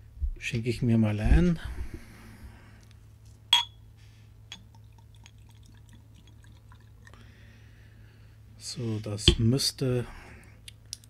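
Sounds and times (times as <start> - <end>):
glass clinking on glass: 3.5 - 3.8
liquid dripping into glass: 4.5 - 7.2.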